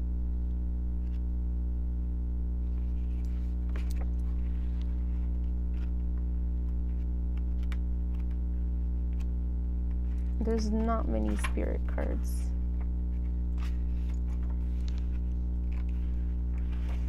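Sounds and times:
steady low hum: 0.0 - 17.0
handling rustle: 9.9 - 17.0.

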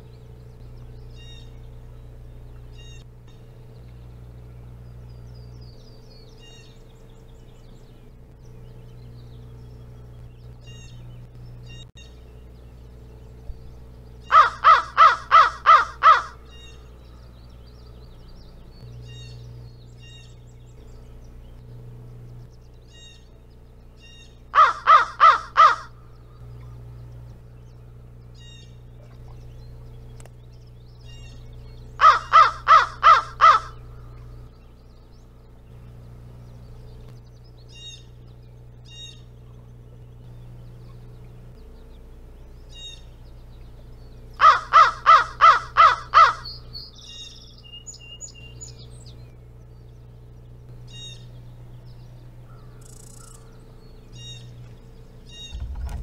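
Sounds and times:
small birds chirping: 0.0 - 56.0
crow cawing: 14.2 - 16.4, 24.5 - 26.0, 32.0 - 34.1, 44.4 - 46.6.

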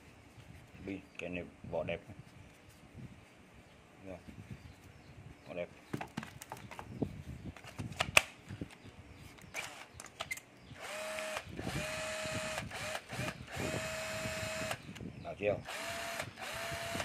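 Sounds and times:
drill motor whining: 9.6 - 9.8, 10.8 - 14.8, 15.6 - 17.0.

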